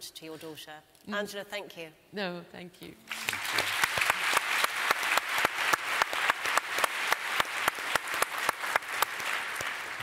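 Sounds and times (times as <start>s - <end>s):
audience applauding: 3.1s - 10.0s
nearby hands clapping: 3.1s - 10.0s.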